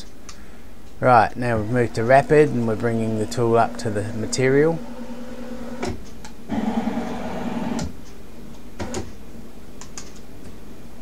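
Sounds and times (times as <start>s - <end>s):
lathe axis drive humming: 1.3s - 8.0s.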